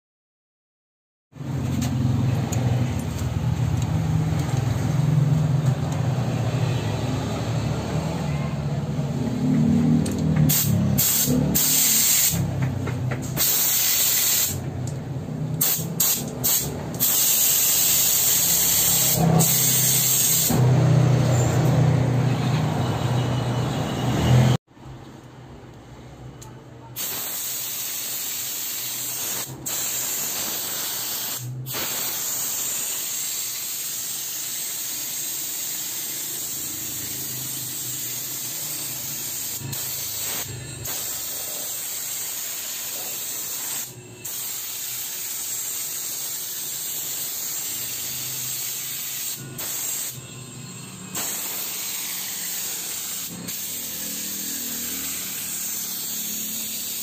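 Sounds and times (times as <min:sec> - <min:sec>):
air washing gun spraying hiss: 0:10.4 - 0:12.7, 0:13.3 - 0:14.6, 0:15.6 - 0:20.6, 0:27.0 - 0:57.0.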